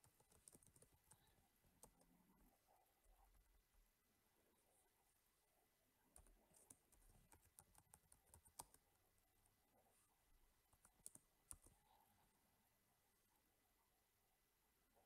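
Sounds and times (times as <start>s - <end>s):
faint keyboard typing: 0.0s - 3.7s, 6.1s - 9.6s, 10.6s - 12.1s.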